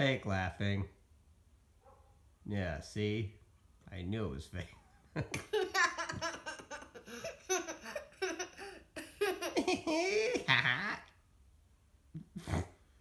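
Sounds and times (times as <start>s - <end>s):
young boy laughing: 5.1s - 11.2s, 12.2s - 12.8s.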